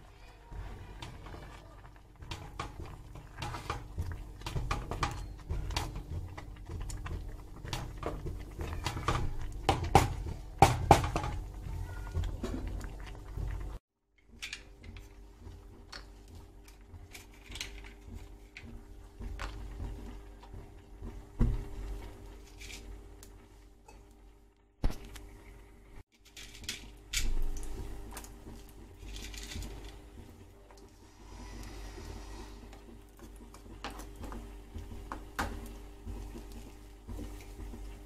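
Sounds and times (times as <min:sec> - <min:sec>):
pots and pans clattering: 0:02.2 - 0:13.6.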